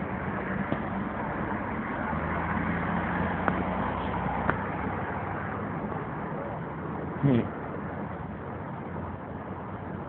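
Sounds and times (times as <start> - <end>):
engine humming: 0.0 - 10.0
road traffic rumble: 0.0 - 10.0.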